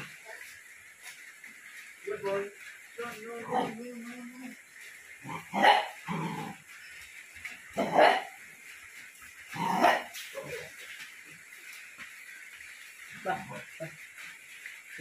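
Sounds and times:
puppy barking: 0:05.3 - 0:06.0, 0:07.8 - 0:08.3, 0:09.6 - 0:10.6.

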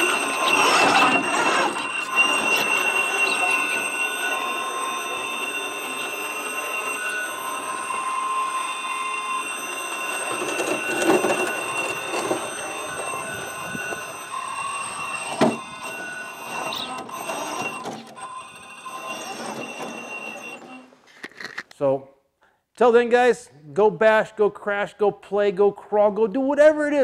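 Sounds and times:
electric motor whining: 0:00.0 - 0:20.9.

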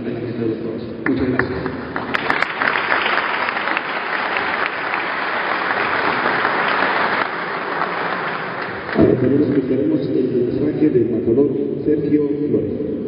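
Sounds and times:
crowd applauding: 0:01.1 - 0:09.8.

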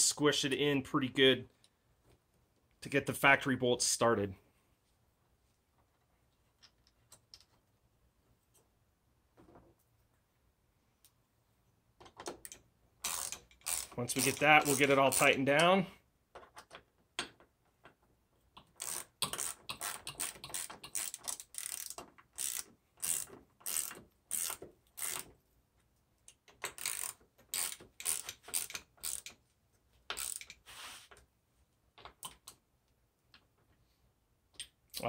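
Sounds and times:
hand ratchet clicking: 0:12.4 - 0:15.8, 0:18.6 - 0:25.3, 0:26.3 - 0:29.4, 0:30.1 - 0:30.6.

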